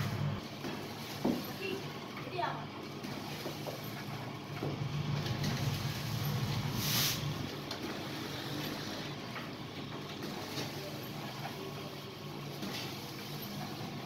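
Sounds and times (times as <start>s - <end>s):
packing machine motor hum: 0.0s - 14.0s
short hiss: 6.8s - 7.3s.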